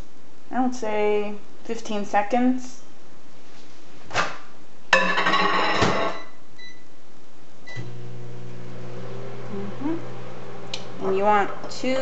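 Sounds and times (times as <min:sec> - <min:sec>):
microwave humming: 0:07.7 - 0:12.0.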